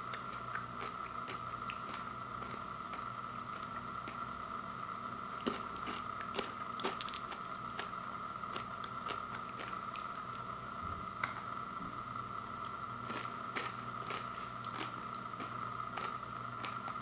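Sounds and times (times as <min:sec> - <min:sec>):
faint steady whine: 0:00.0 - 0:17.0
candies clicking in a palm: 0:06.9 - 0:07.4.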